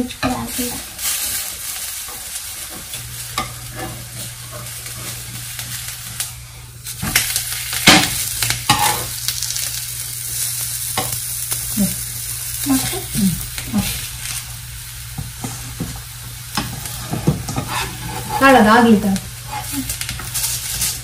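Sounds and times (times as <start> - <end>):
flatbread sizzling in oil: 0.0 - 21.0
metal spatula scraping pan: 16.6 - 18.7.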